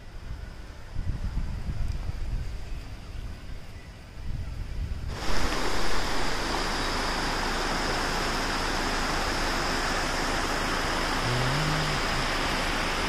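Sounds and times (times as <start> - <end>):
low wind rumble: 0.0 - 12.9
river rushing over rapids: 5.1 - 13.0.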